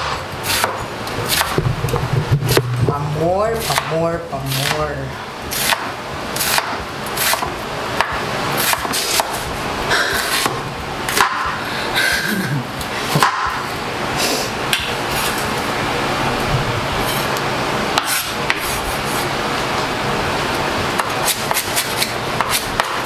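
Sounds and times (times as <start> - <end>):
knife chopping on wooden board: 0.0 - 2.7, 3.6 - 4.8, 5.6 - 11.5, 18.0 - 18.8, 21.0 - 23.0.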